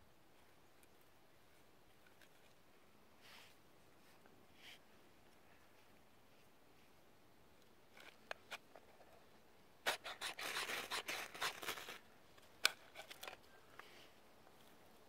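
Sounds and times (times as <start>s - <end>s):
knife shaving wood: 9.9s - 12.0s.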